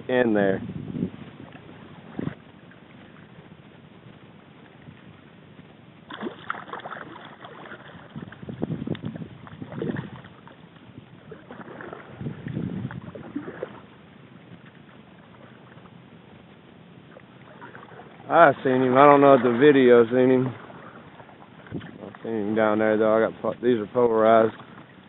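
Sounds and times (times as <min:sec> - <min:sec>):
paddle splashing in water: 0:01.2 - 0:05.2, 0:06.0 - 0:25.0.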